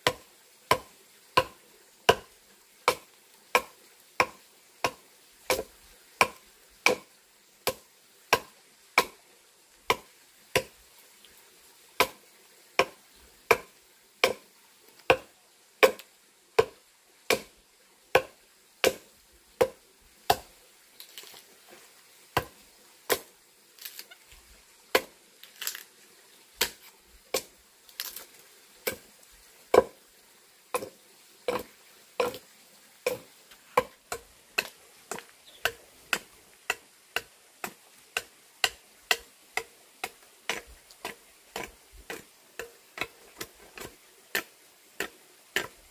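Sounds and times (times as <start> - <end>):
axe chopping wood: 0.0 - 2.3, 2.9 - 9.2, 9.9 - 10.8, 12.0 - 12.2, 12.8 - 14.4, 15.1 - 16.0, 16.6 - 17.5, 18.1 - 19.0, 19.6 - 20.5, 22.4 - 23.3, 24.9 - 25.8, 26.6 - 28.2, 28.8 - 29.0, 29.7 - 30.0, 30.8 - 31.6, 33.0 - 45.9.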